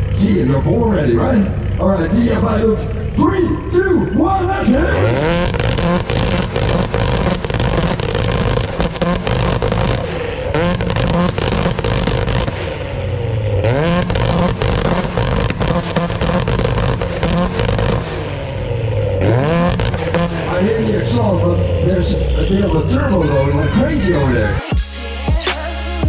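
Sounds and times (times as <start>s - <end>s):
car engine revving: 0.0s - 26.0s
exhaust cracks and pops: 4.9s - 21.6s.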